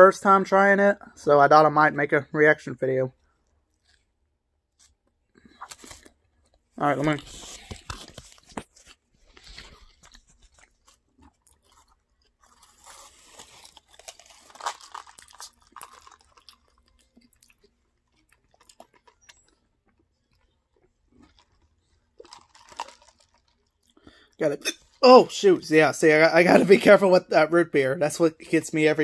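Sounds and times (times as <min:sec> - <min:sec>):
person chewing and crunching food: 0:03.2 - 0:25.0.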